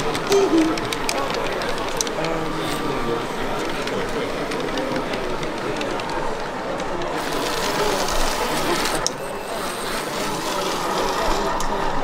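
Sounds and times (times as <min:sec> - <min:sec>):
train wheels clicking: 0:00.0 - 0:11.8
model train motor whirring: 0:07.0 - 0:12.0.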